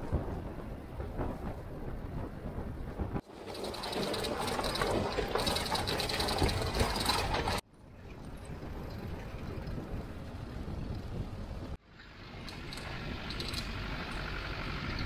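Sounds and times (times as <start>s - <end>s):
vehicle body rattling: 0.7s - 7.6s
vehicle engine running: 11.9s - 15.0s.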